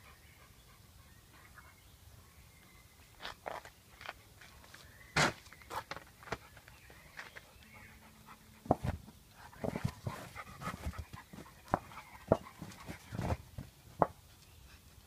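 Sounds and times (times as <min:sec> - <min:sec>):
dog panting: 0:07.5 - 0:13.5.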